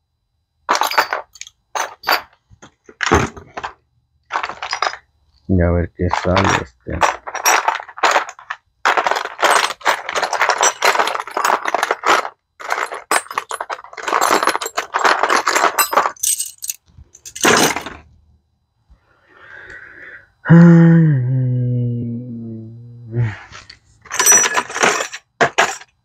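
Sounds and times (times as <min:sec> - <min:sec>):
metal tools clinking: 0:00.7 - 0:02.4, 0:04.3 - 0:05.0, 0:06.1 - 0:18.0, 0:24.0 - 0:25.9.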